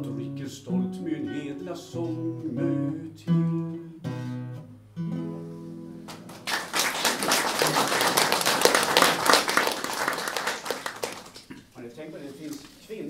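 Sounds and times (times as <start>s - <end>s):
acoustic guitar chords: 0.0s - 6.5s
audience applause: 6.1s - 11.5s.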